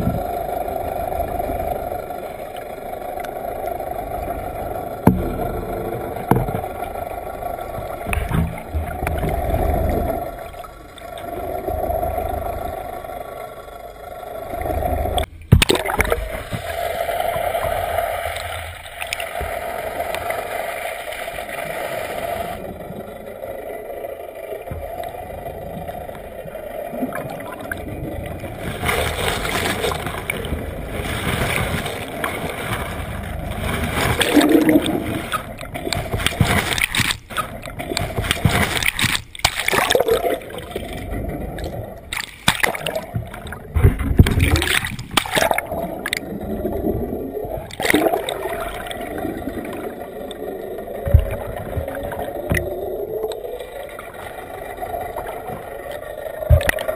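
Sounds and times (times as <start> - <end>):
water sloshing and gurgling: 0.0 - 56.9
water splashes: 14.6 - 22.7, 24.6 - 56.9.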